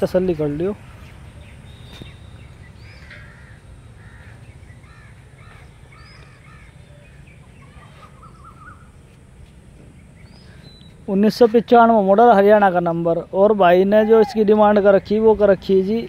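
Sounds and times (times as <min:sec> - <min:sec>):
low steady rumble: 0:00.0 - 0:16.0
crows cawing: 0:02.8 - 0:08.0, 0:13.9 - 0:14.8.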